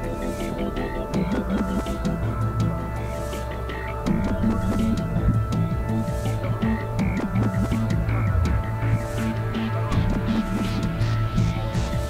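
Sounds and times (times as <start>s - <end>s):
background film music: 0.0s - 12.0s.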